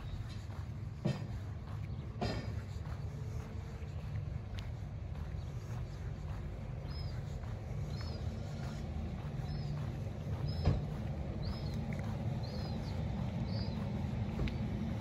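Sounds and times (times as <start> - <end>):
low outdoor rumble: 0.0 - 15.0
small bird chirping: 3.9 - 14.6.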